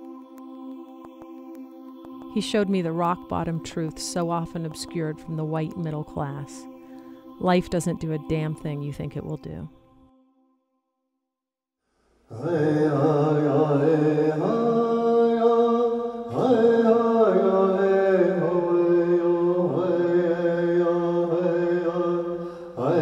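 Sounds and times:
chanted singing in held notes: 0.0 - 10.1, 12.3 - 23.0.

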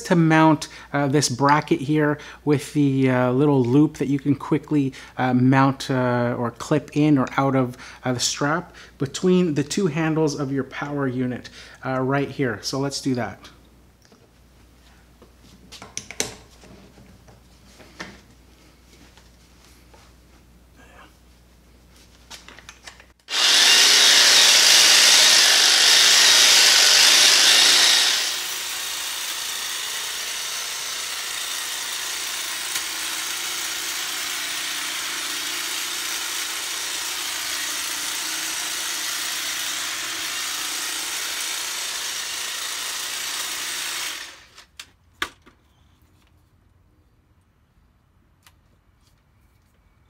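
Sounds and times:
hedge trimmer cutting: 23.3 - 44.8.

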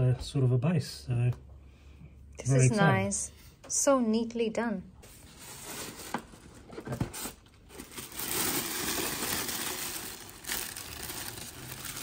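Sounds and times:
packaging rustling and crinkling: 5.2 - 12.0.

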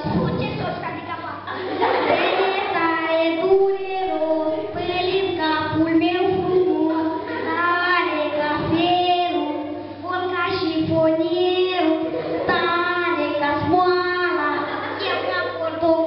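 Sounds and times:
girl singing into a microphone: 2.2 - 16.0.

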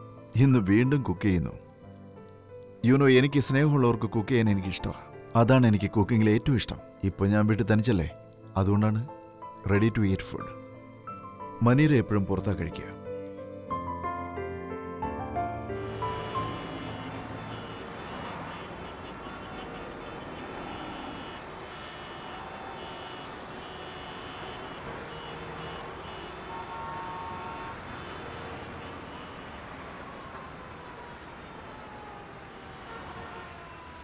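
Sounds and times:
traffic engines running: 15.5 - 34.0.

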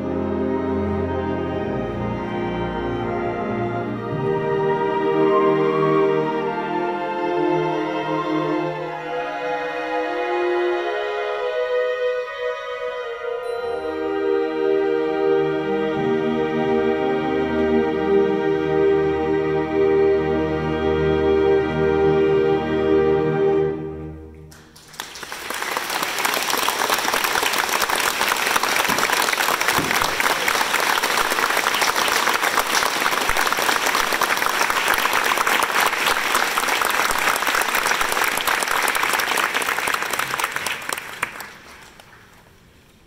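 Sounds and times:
audience applauding: 24.5 - 42.5.

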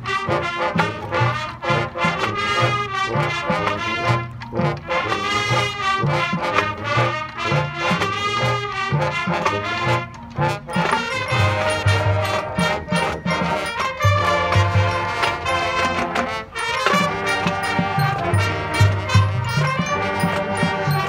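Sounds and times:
brass section sustained chords: 0.0 - 21.0
steady drum beat: 10.3 - 21.0.

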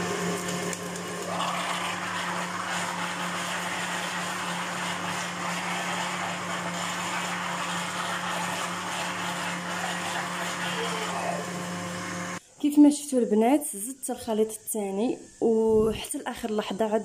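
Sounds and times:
blender whirring: 0.0 - 12.4.

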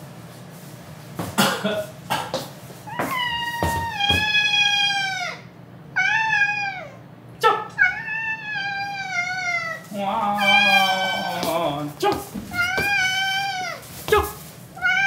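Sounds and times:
cat meowing: 2.9 - 7.0, 7.8 - 11.6, 12.5 - 13.8, 14.8 - 15.0.

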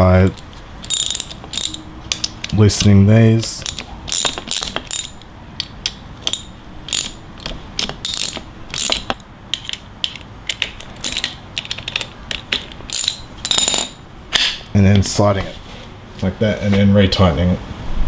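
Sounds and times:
socket ratchet clicking: 0.4 - 3.0, 3.6 - 14.0.

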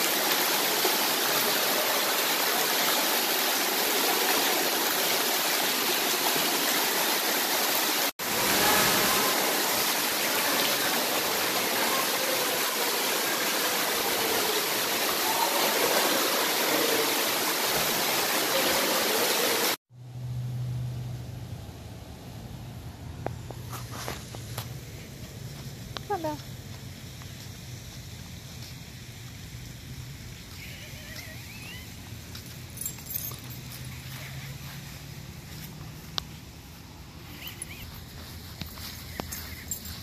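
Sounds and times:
water pouring and splashing: 0.0 - 19.8.

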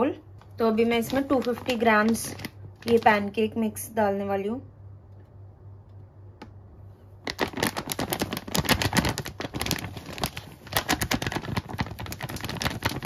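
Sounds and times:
plastic packet crinkling: 0.8 - 3.5, 7.2 - 13.0.

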